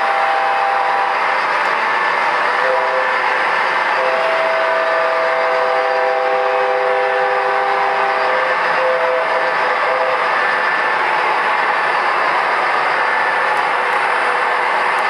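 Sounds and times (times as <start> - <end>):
model locomotive horn: 0.0 - 1.4, 2.3 - 11.2
model train rumbling on track: 0.0 - 15.0.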